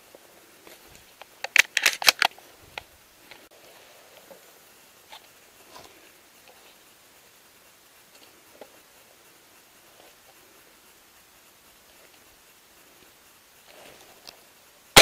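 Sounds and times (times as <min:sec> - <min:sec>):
faint ticks: 0:07.6 - 0:14.6.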